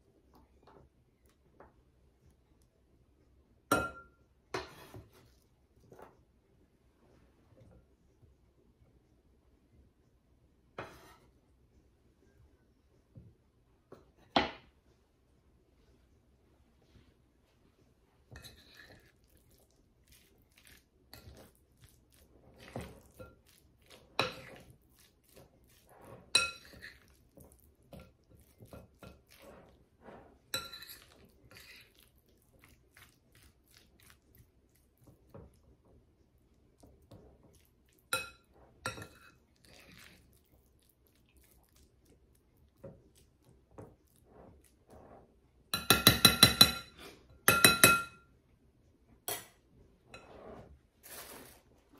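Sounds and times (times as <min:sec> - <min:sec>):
spoon clinking on glass bowl: 0:26.3 - 0:27.0, 0:45.8 - 0:46.9, 0:47.5 - 0:48.2.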